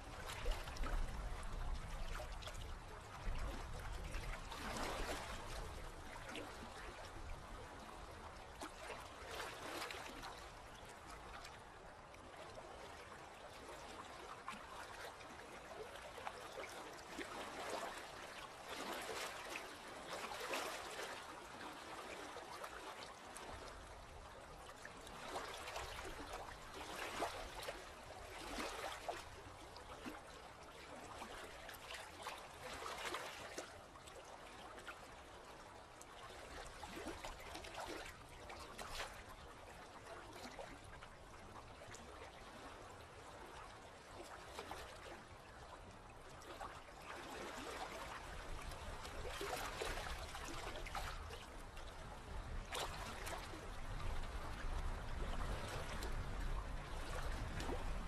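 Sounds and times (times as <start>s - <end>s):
sea water lapping: 0.0s - 58.0s.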